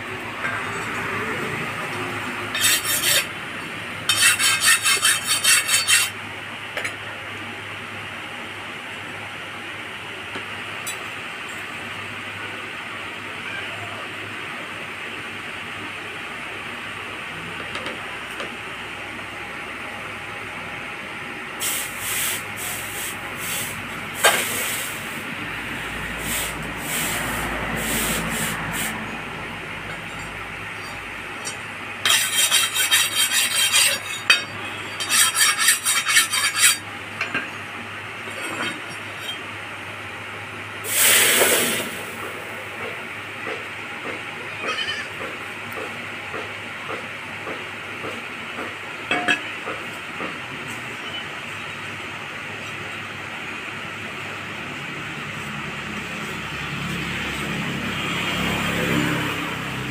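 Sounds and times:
hand file rasping on blade: 2.5s - 3.3s, 4.1s - 6.2s, 32.0s - 36.8s.

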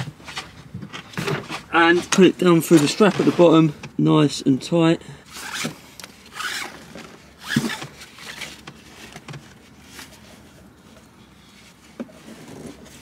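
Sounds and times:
strap pulled through buckle: 5.3s - 6.8s.

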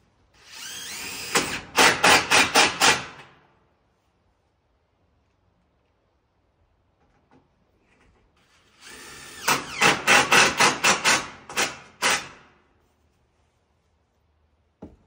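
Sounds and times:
cordless drill driving screw into wood: 0.4s - 3.3s, 8.4s - 12.5s.

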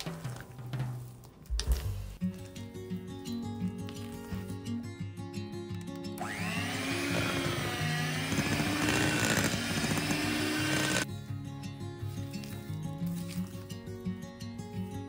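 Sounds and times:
electric hand mixer whining: 6.2s - 11.1s.

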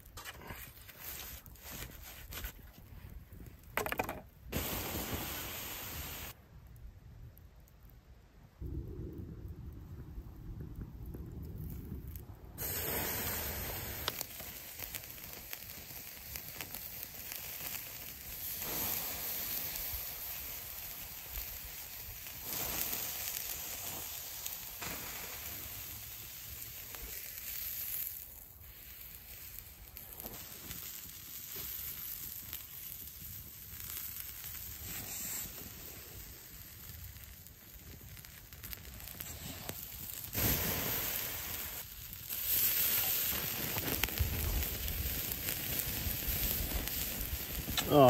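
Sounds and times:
campfire crackling: 0.0s - 48.0s
hot dogs sizzling on grill: 3.9s - 6.4s, 11.6s - 48.0s.

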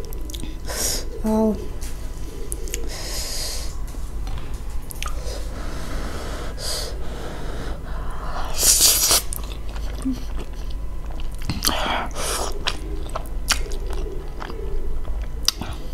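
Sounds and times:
person drawing in air hissing: 5.2s - 9.3s.

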